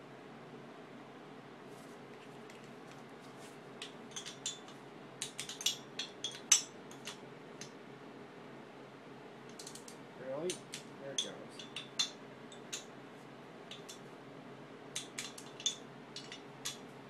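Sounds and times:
metallic clicks of tools: 3.8s - 7.8s, 9.5s - 12.9s, 13.7s - 14.0s, 15.0s - 16.9s.

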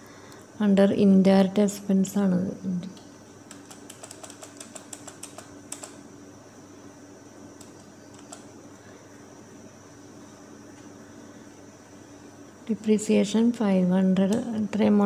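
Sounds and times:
faint steady hum: 0.0s - 15.0s
keyboard keys clicking: 3.5s - 6.0s, 7.6s - 8.4s.

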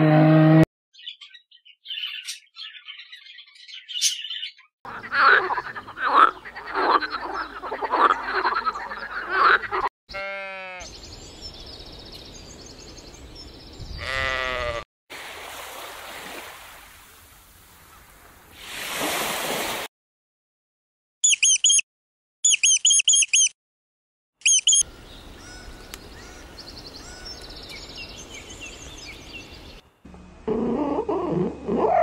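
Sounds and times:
harsh croaking animal calls: 4.9s - 10.9s, 30.4s - 32.0s
sheep bleating: 10.1s - 10.9s, 14.0s - 14.8s
steady outdoor hiss: 24.9s - 30.8s.

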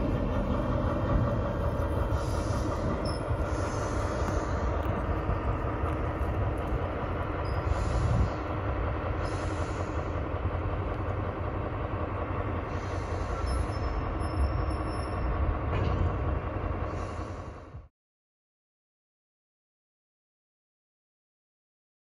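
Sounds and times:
diesel locomotive engine drone: 0.0s - 17.9s
faint high wheel squeal: 2.1s - 4.8s, 7.2s - 8.4s, 12.7s - 16.1s.

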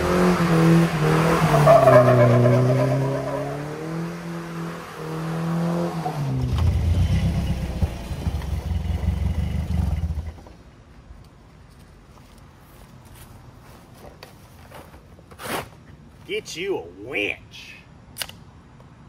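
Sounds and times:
minivan engine revving: 0.0s - 10.4s
van driving off: 0.0s - 10.6s.

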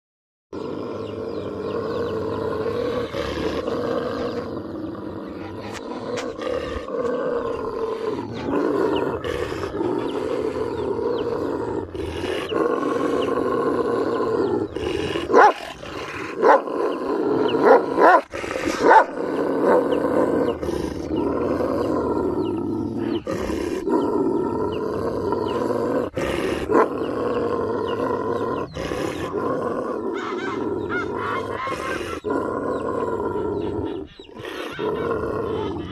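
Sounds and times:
dogs growling and snarling: 0.5s - 35.9s.

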